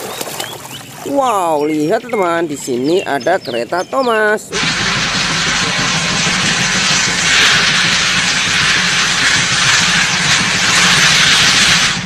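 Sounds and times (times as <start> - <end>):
steam locomotive hissing: 4.0 - 12.0.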